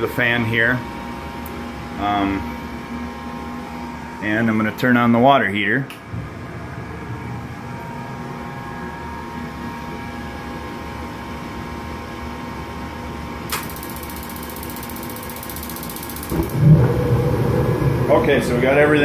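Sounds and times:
exhaust fans running: 0:00.0 - 0:19.0
furnace fan humming: 0:00.0 - 0:19.0
gas burners hissing: 0:13.5 - 0:19.0.

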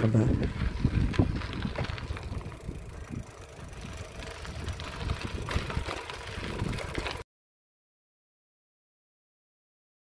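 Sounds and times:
bike tyres on loose stones: 0:00.0 - 0:07.2
wind on microphone: 0:00.1 - 0:07.2.

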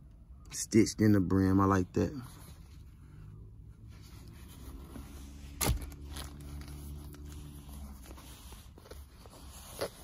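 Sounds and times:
fabric rustling: 0:03.8 - 0:10.0.

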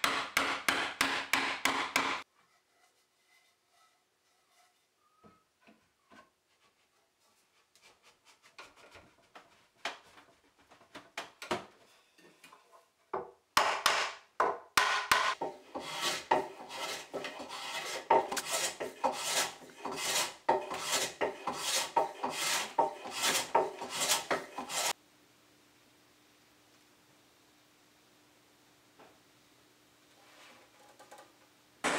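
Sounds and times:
hand plane rasping along wood: 0:15.4 - 0:24.9.

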